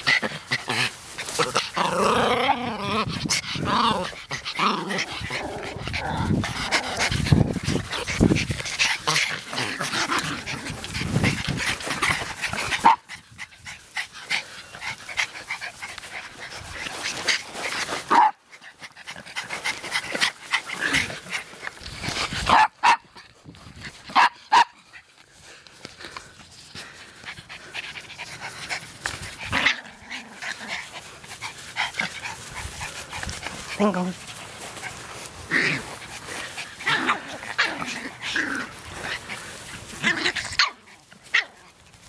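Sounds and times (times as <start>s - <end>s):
rustling in grass: 0.0s - 42.0s
puppy barking: 22.5s - 23.1s, 24.2s - 24.8s.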